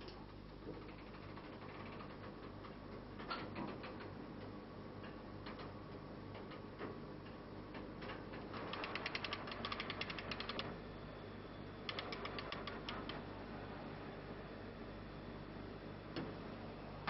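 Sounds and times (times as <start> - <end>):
hand-cranked winch ratcheting: 8.7 - 10.6.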